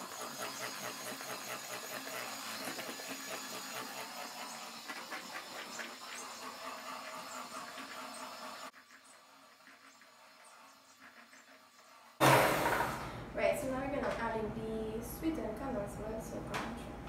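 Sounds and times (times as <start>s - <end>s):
electric hand mixer whirring: 0.0s - 8.8s, 12.2s - 13.2s.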